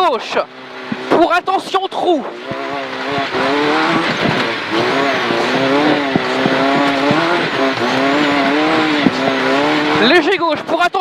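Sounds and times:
rally car engine pulling hard: 0.0 - 11.0
sharp knocks from rough track: 2.4 - 7.9, 8.8 - 9.4.

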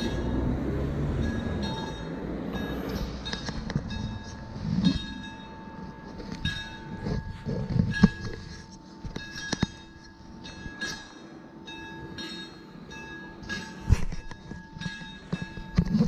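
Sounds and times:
road rumble: 0.0 - 9.5.

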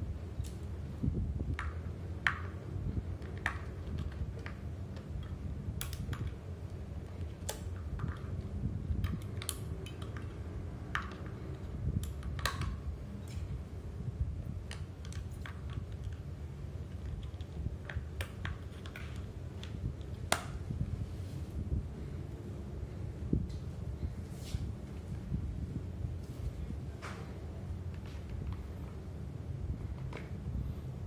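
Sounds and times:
low steady rumble: 0.0 - 31.0
small plastic clicks and taps: 12.0 - 12.8.

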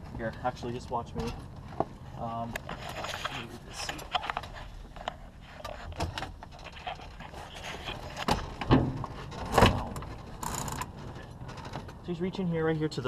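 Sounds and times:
knocks and clunks: 3.8 - 12.1
loud thumps: 8.3 - 10.7.

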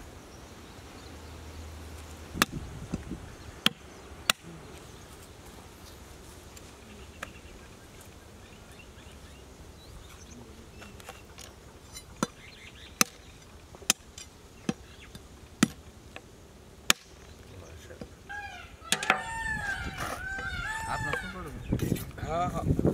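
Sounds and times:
faint background noise: 0.0 - 22.9
cleaver chopping bones on wood: 3.6 - 4.4, 15.6 - 16.3, 16.9 - 17.2.

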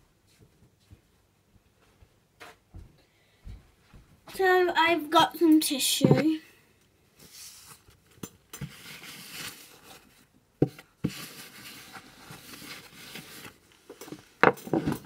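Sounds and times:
paper tissue rustling: 7.2 - 10.3, 10.9 - 15.0.

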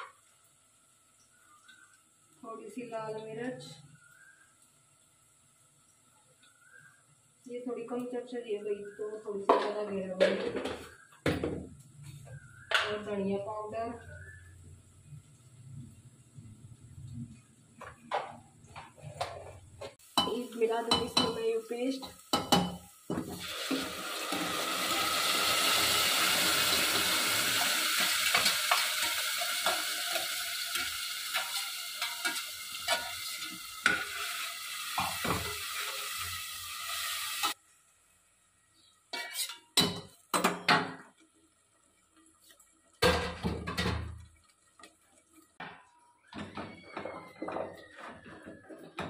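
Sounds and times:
paste sizzling in hot oil: 20.0 - 37.6, 38.9 - 43.6
metal spoon scraping and clinking: 28.0 - 34.4, 39.1 - 40.0.

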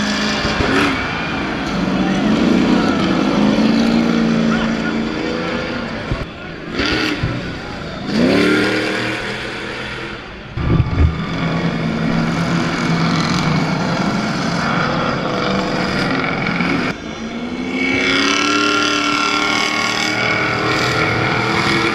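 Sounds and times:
race truck engines running: 0.0 - 21.9
engine revving up: 8.0 - 17.0
low thumps: 10.6 - 12.2.

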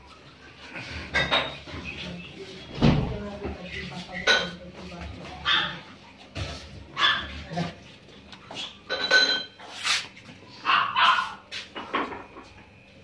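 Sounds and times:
puppies yapping: 6.9 - 7.4, 10.5 - 11.5.

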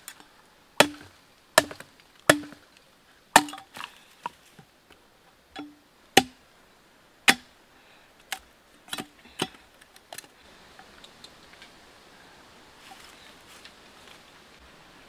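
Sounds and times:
knife chopping bamboo: 0.8 - 2.6, 3.4 - 3.9, 5.6 - 6.4, 7.3 - 7.5.

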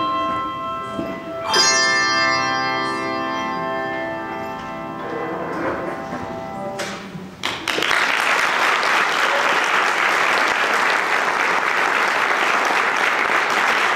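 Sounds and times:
audience applause: 7.4 - 13.9.

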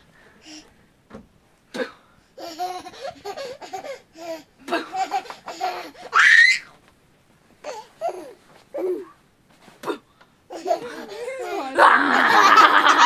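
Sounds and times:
baby giggling: 2.4 - 6.2, 10.5 - 13.0
baby squealing: 6.1 - 6.7.

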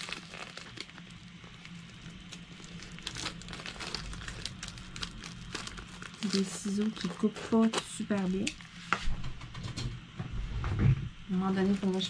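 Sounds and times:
scissors cutting plastic: 0.0 - 8.7
plastic packaging crinkling: 0.0 - 8.9, 11.3 - 12.0.

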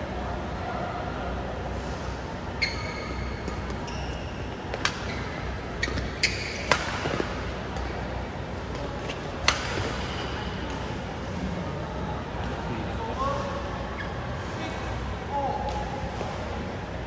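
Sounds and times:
shoes squeaking on court: 2.6 - 7.5
rackets striking shuttlecock: 4.7 - 5.2, 5.8 - 7.9, 8.7 - 10.9.

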